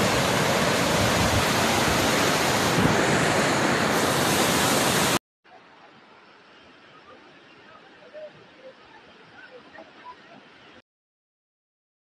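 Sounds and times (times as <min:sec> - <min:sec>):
flood water rushing: 0:00.0 - 0:05.2.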